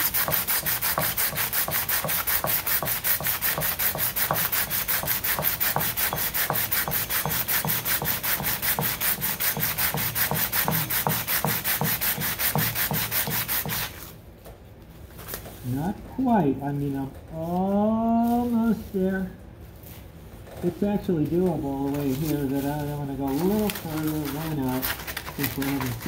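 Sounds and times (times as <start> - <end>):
sanding on sandpaper: 0.0 - 14.0, 22.0 - 26.0.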